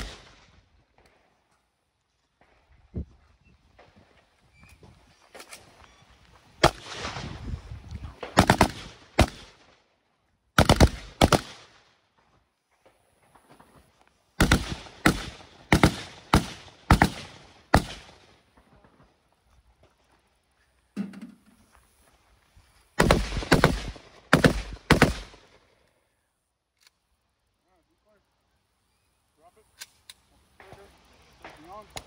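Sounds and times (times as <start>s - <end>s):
rifle shots: 0.0s - 0.6s, 6.6s - 7.4s, 8.1s - 9.8s, 10.6s - 11.9s, 14.4s - 18.6s, 23.0s - 25.6s.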